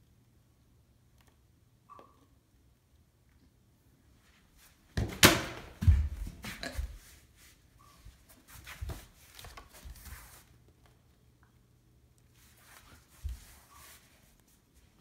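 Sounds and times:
objects rolling and scuffing: 0:04.9 - 0:07.5.

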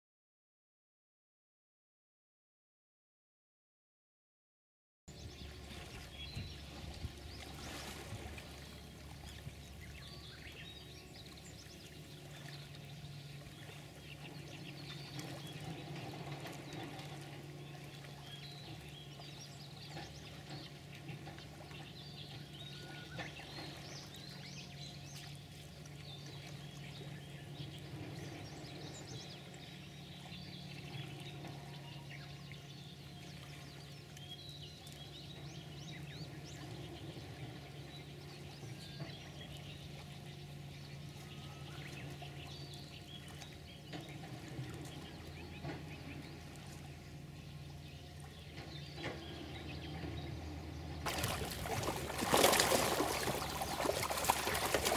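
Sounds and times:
low steady hum: 0:05.1 - 0:54.9
running water trickling: 0:05.4 - 0:22.6, 0:51.0 - 0:54.9
faint bird chirps: 0:37.6 - 0:44.0.

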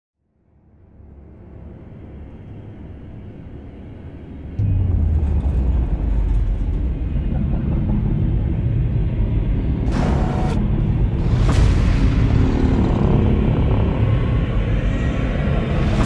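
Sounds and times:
deep cinematic rumble: 0:03.6 - 0:16.0.

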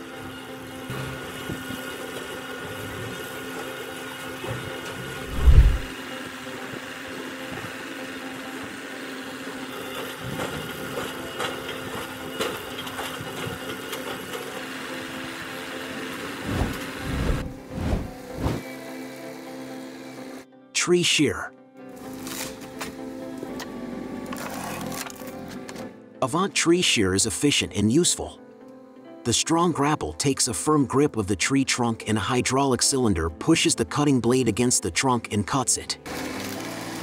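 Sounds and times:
log debarking machine humming: 0:00.0 - 0:20.4
heavy low thumps: 0:05.3 - 0:05.9.

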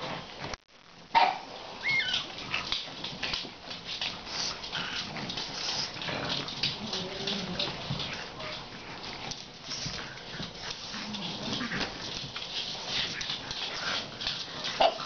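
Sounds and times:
puppy squeaks and yips: 0:01.8 - 0:02.3
paws scratching on floor: 0:01.8 - 0:15.0
dog growling: 0:04.2 - 0:15.0.

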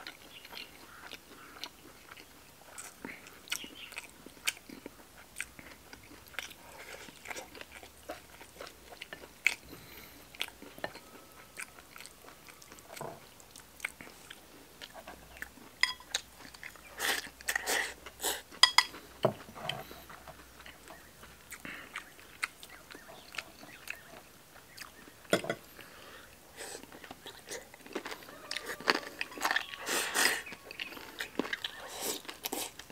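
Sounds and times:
person chewing food: 0:00.0 - 0:32.9
wet mouth noises: 0:28.6 - 0:32.9.

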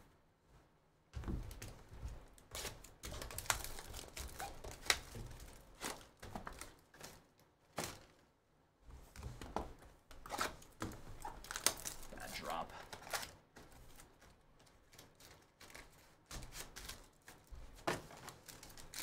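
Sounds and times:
plastic wrap crinkling and tearing: 0:02.5 - 0:08.2, 0:10.3 - 0:19.0.

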